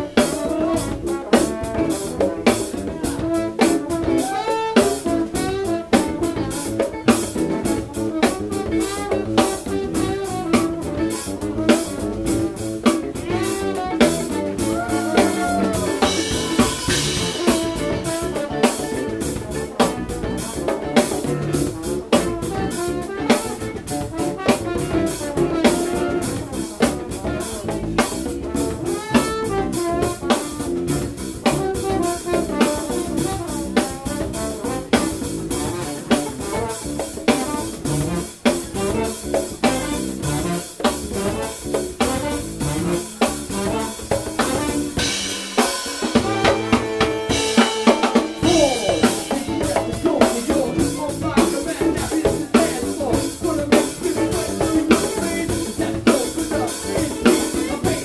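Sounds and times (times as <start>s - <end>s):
funk band playing: 0.0s - 58.0s
snare and bass drum hits: 39.6s - 53.0s.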